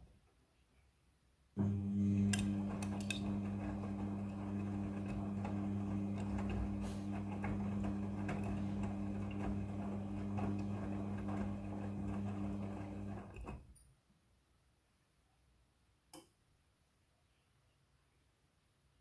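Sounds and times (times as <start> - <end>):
washing machine motor hum: 1.6 - 13.6.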